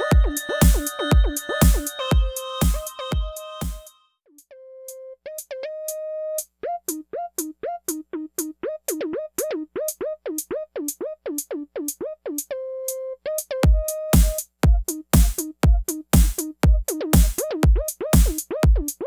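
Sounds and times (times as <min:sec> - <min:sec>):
drum machine beat: 0:00.0 - 0:03.9, 0:13.4 - 0:19.0.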